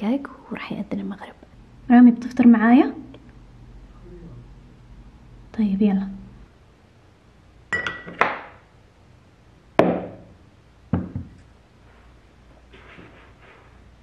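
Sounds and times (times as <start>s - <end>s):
ceramic dishes clinking: 7.7s - 8.3s.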